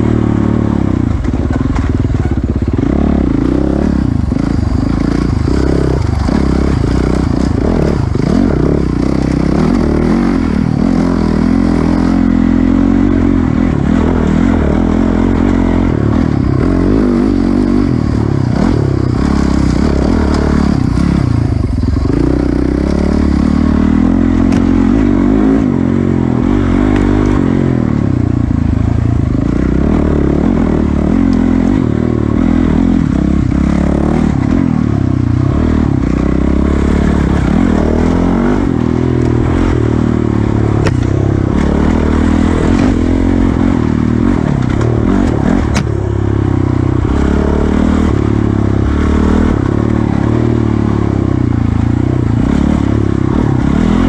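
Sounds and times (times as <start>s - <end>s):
dirt bike engine revving: 0.0s - 54.0s
sharp knocks from bike: 40.8s - 41.2s.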